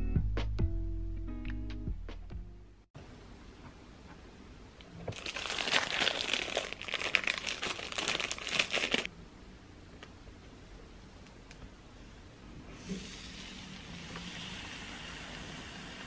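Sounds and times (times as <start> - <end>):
plastic bag crinkling: 5.1 - 9.1.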